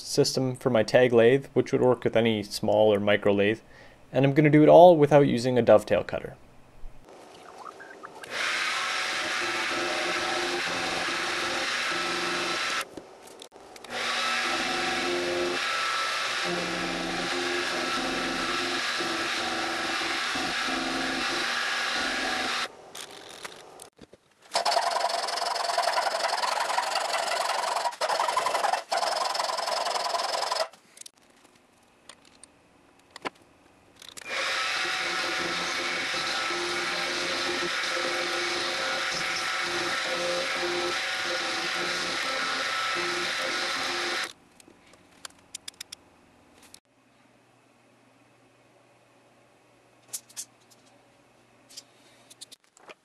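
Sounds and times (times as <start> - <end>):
milling machine cutting metal: 8.3 - 12.8, 13.9 - 22.7, 34.3 - 44.3.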